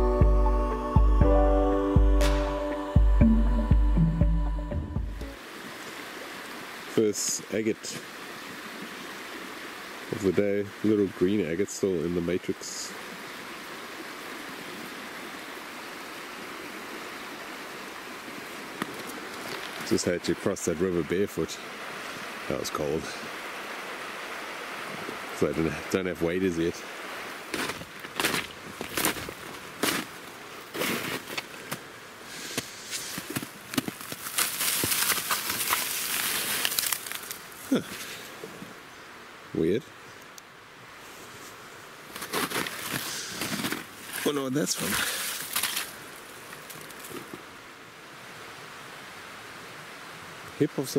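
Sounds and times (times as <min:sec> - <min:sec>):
river water rushing: 0:05.1 - 0:50.9
rustling hiss: 0:05.3 - 0:50.9
footsteps crunching through snow: 0:27.5 - 0:31.8, 0:32.5 - 0:37.4, 0:41.4 - 0:45.9.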